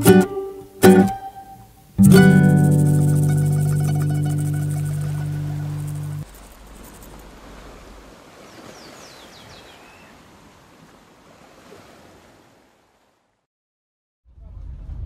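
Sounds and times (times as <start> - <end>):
sea surf washing on a beach: 0.0 - 13.2.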